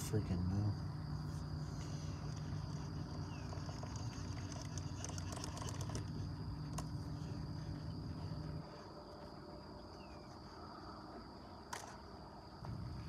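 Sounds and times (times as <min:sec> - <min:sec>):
insects droning: 0:00.0 - 0:13.0
fishing reel cranking whirr: 0:02.2 - 0:06.8.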